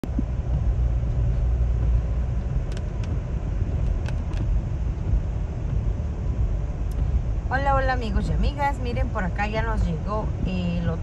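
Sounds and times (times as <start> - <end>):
car road rumble: 0.0 - 11.0
light ticks: 2.4 - 3.2.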